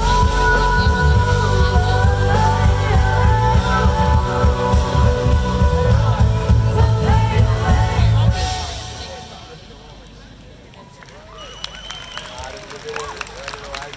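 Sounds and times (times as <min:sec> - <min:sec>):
guitar: 0:00.0 - 0:09.4
singer holding long notes: 0:00.0 - 0:09.9
heavy bass line: 0:00.0 - 0:10.0.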